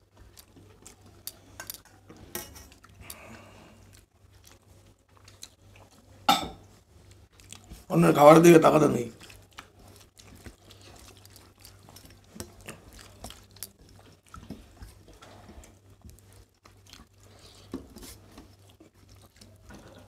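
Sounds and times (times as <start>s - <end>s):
fingers mixing food on plates: 6.7s - 20.0s
mouths chewing: 7.0s - 20.0s.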